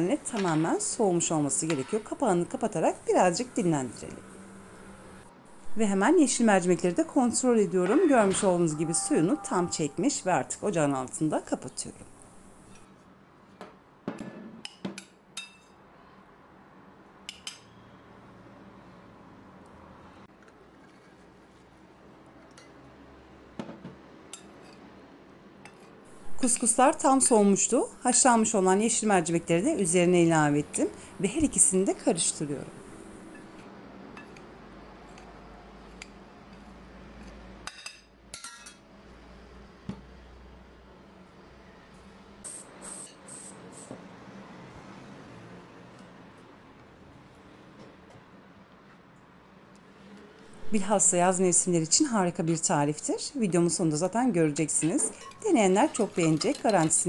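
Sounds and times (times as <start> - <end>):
metal utensil clinking on glass bowl: 54.8 - 57.0.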